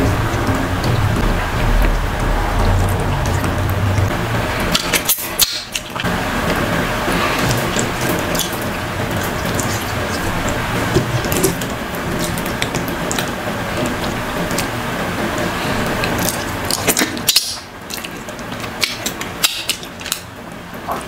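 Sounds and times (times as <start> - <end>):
wet squelching of food by hand: 7.0 - 14.8
chewing with wet mouth clicks: 16.0 - 20.3.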